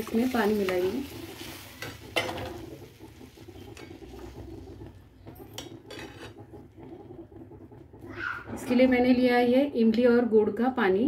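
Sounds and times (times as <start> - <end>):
steel ladle stirring in metal pan: 0.0 - 7.6.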